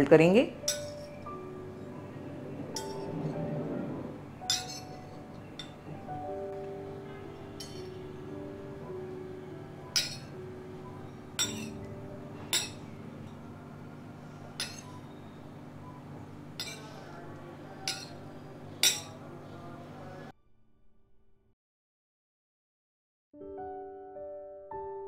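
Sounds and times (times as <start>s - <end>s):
soft background music: 0.0s - 20.4s
knife clinking on stone worktop: 7.6s - 8.0s, 10.0s - 10.3s, 11.4s - 11.8s, 12.5s - 12.8s, 14.6s - 15.0s, 16.6s - 17.1s, 17.9s - 18.2s, 18.8s - 19.2s.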